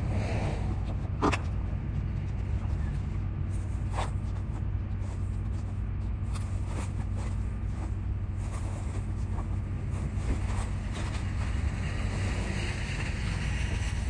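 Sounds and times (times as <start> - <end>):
low outdoor rumble: 0.0 - 14.0
plastic bags rustling: 3.5 - 11.7.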